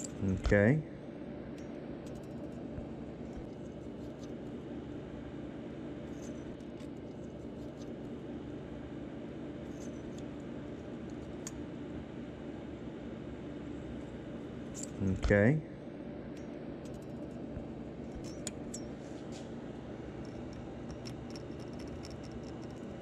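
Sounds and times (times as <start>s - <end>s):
metal blade ticking and scraping: 14.8s - 15.0s, 18.1s - 19.0s, 20.1s - 23.0s.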